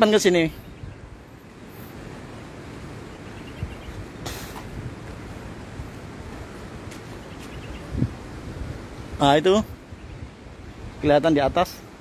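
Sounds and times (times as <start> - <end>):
wind rumbling on microphone: 0.0 - 12.0
short hiss: 4.2 - 4.8.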